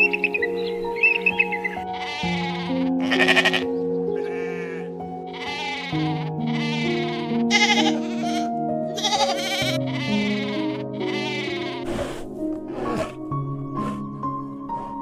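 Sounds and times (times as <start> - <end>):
soft piano and guitar music: 0.0 - 15.0
sheep bleating: 1.6 - 11.9.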